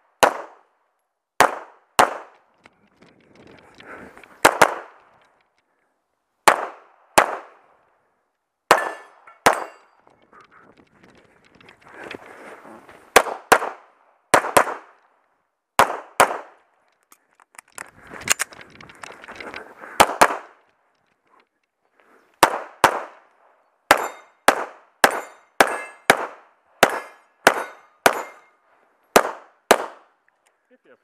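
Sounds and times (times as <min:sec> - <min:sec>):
pistol shots: 0:00.2 - 0:00.6, 0:01.4 - 0:02.4, 0:04.4 - 0:05.0, 0:06.4 - 0:07.6, 0:08.7 - 0:09.8, 0:13.1 - 0:15.0, 0:15.8 - 0:16.6, 0:20.0 - 0:20.5, 0:22.4 - 0:23.2, 0:23.9 - 0:28.5, 0:29.1 - 0:30.1
rustling movement: 0:10.0 - 0:13.2
metallic ring of steel plate: 0:24.0 - 0:24.4, 0:25.1 - 0:26.1, 0:26.9 - 0:28.6.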